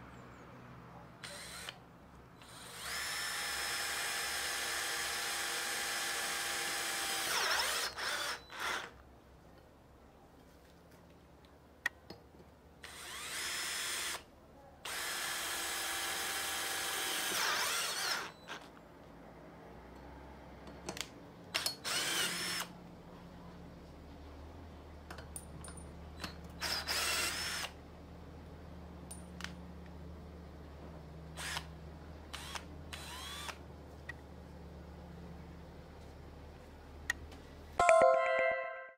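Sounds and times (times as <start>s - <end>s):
cordless drill motor whine: 2.4s - 4.4s, 12.9s - 14.2s, 32.3s - 33.6s.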